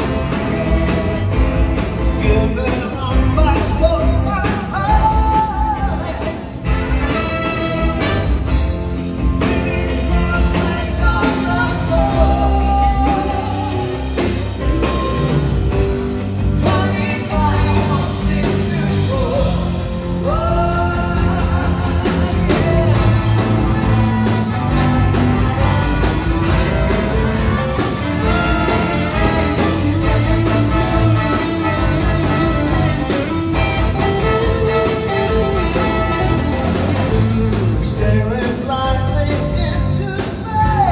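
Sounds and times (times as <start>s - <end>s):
live rock band with horns: 0.0s - 40.9s
person singing: 9.4s - 15.2s.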